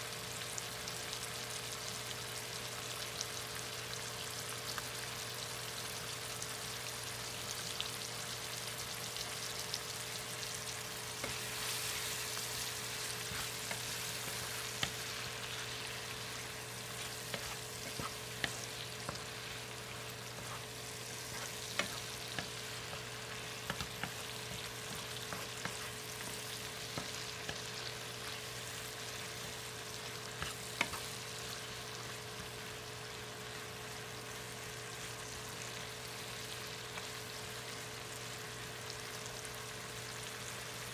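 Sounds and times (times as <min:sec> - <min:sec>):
vegetables sizzling in a frying pan: 0:00.0 - 0:40.9
spatula knocking a pan: 0:21.2 - 0:26.0, 0:26.9 - 0:27.7.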